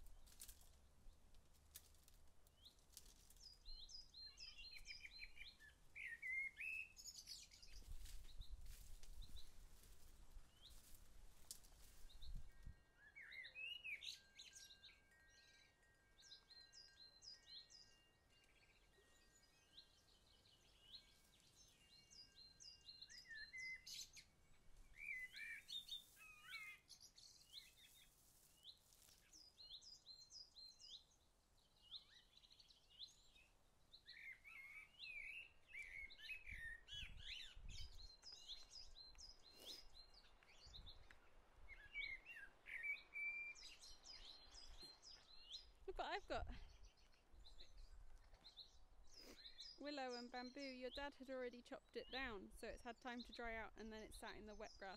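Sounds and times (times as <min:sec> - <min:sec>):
small birds chirping: 0:00.0 - 0:54.9.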